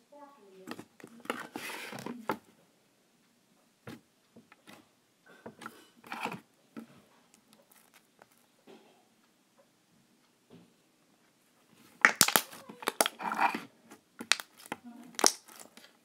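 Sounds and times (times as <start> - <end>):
slime sticky clicks and crackles: 12.0 - 13.2, 14.2 - 15.9.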